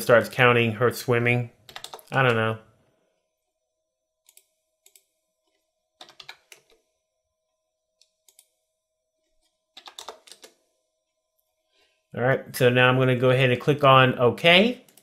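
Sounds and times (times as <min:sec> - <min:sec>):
computer keyboard typing: 0:01.7 - 0:02.5, 0:06.0 - 0:06.8, 0:09.7 - 0:10.6.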